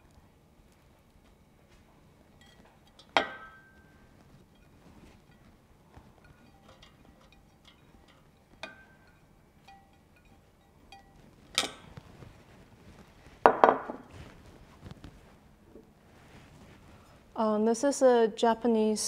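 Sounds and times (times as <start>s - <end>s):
dishware clattering: 2.4s - 3.8s, 6.2s - 11.9s
spoon scraping ceramic plate: 6.1s - 12.0s.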